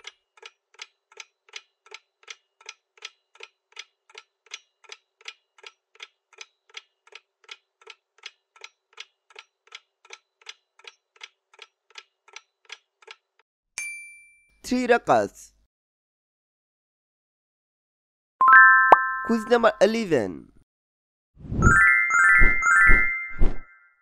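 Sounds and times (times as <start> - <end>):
clock ticking: 0.0 - 13.3.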